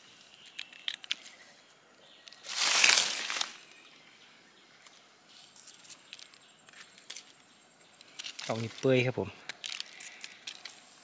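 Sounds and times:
dry leaves rustling: 2.2 - 3.9, 8.1 - 11.0.

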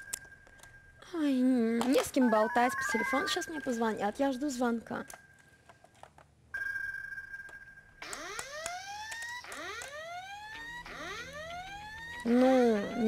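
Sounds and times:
steady high beep: 2.2 - 4.6.

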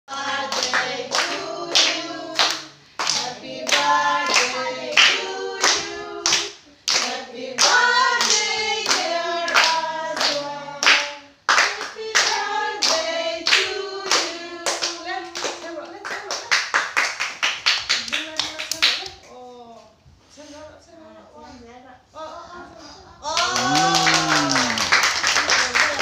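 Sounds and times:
children and woman singing: 0.1 - 15.4
hands clapping in time: 23.4 - 26.0.

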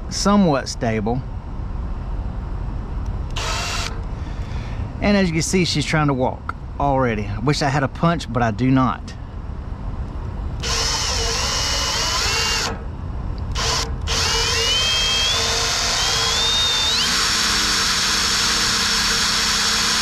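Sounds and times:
cordless drill drilling into metal: 3.4 - 4.0, 10.6 - 12.8, 13.5 - 20.0.

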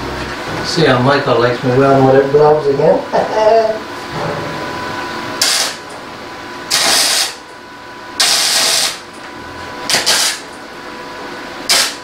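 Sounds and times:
crackling welding arc: 5.4 - 5.8, 6.7 - 7.4, 8.2 - 9.1, 9.9 - 10.6, 11.7 - 12.0.

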